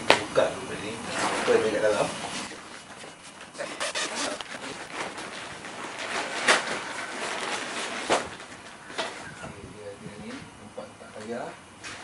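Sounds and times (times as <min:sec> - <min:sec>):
fabric and plastic rustling: 0:01.1 - 0:09.2.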